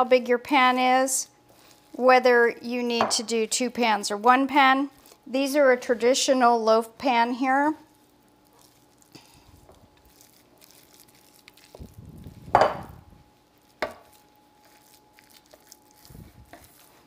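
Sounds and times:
spatula scraping batter from bowl: 0:14.6 - 0:17.0.

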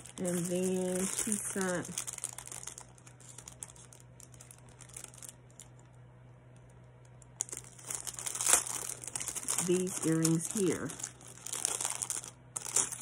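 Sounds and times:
jewelry packaging clicking and rustling: 0:00.0 - 0:05.8, 0:07.1 - 0:13.0
low steady hum: 0:00.0 - 0:13.0.

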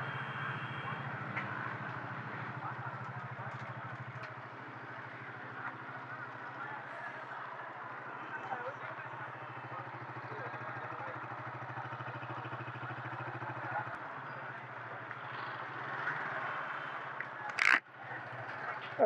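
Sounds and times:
motorcycle engine running: 0:00.0 - 0:19.0
street noise: 0:00.0 - 0:19.0.

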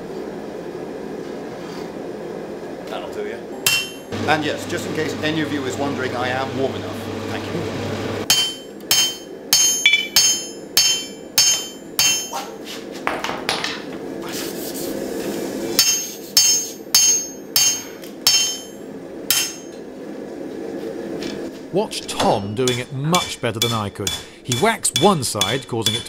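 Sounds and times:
hammer striking steel on anvil: 0:03.6 - 0:04.1, 0:08.3 - 0:12.5, 0:15.8 - 0:19.8, 0:22.2 - 0:26.0.

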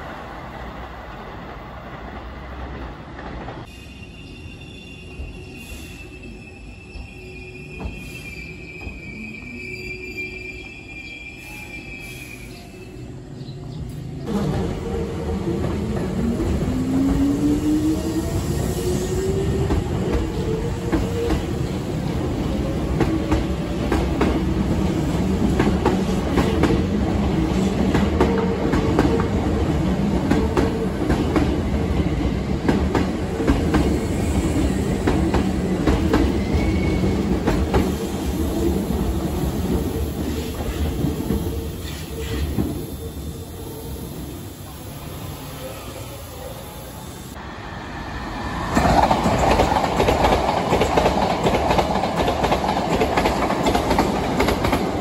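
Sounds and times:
train wheels clacking over rail joints: 0:48.8 - 0:55.0.

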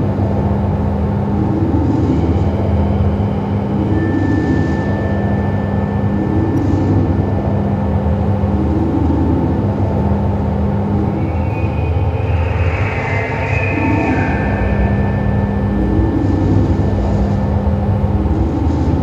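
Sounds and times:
dense low electronic drone: 0:00.0 - 0:19.0
thin high steady tone: 0:11.1 - 0:17.6.

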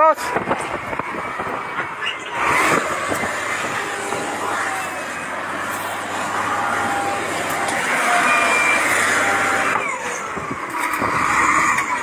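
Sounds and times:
truck engine and rolling noise: 0:00.0 - 0:12.0.

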